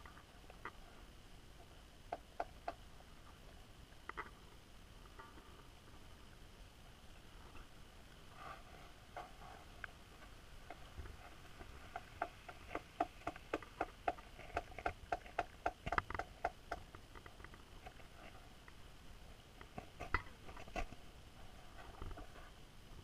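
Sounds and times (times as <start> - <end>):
sharp underwater clicks: 11.6 - 18.0.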